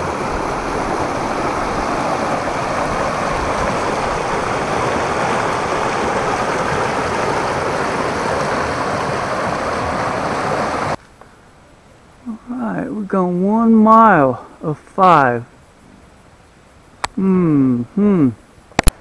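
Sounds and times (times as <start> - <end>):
river water rushing over rocks: 0.0 - 11.0.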